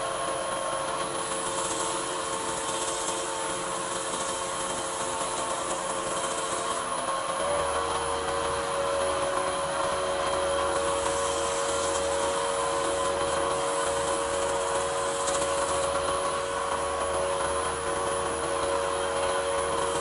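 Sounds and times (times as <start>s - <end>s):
wood lathe motor running: 0.0s - 20.0s
sanding pad rubbing wood: 7.4s - 20.0s.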